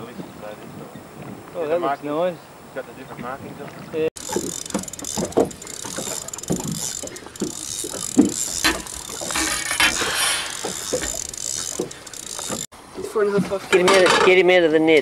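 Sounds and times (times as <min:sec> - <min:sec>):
fishing reel ratcheting whir: 0:04.2 - 0:12.7.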